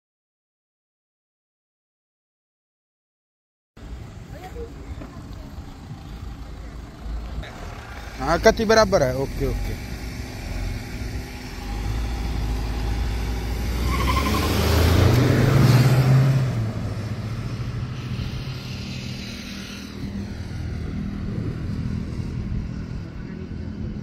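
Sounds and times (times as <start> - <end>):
cars accelerating hard: 6.8 - 24.0.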